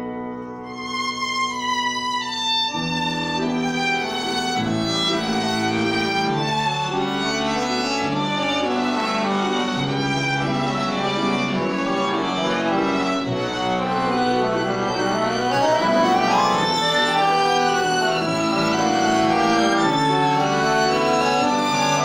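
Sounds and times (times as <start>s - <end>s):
piano: 0.0s - 22.0s
violin melody: 0.0s - 22.0s
accordion chords: 2.2s - 22.0s.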